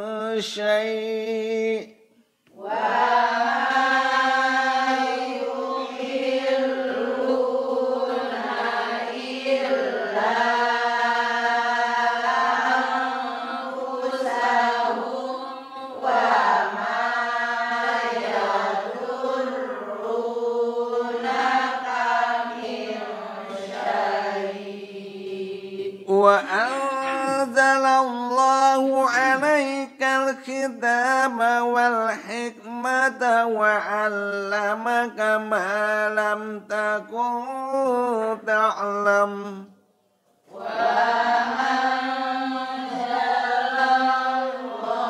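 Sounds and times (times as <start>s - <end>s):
man chanting melodically: 0.0s - 2.0s, 26.1s - 39.7s.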